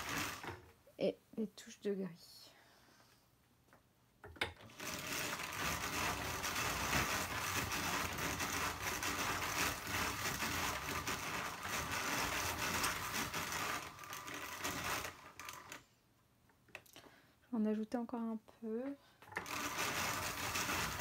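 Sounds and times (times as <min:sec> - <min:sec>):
hand-cranked drum carder whirring: 0:00.0 - 0:00.7, 0:04.6 - 0:15.8, 0:19.2 - 0:21.0.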